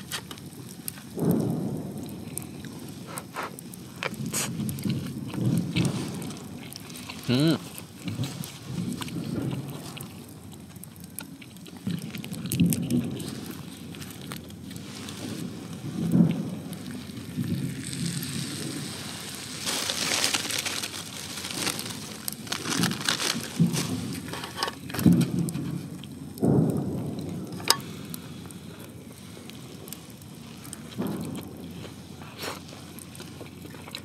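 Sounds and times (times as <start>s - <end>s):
wood fire crackling: 0.0s - 34.0s
person chewing: 2.3s - 14.8s, 30.7s - 34.0s.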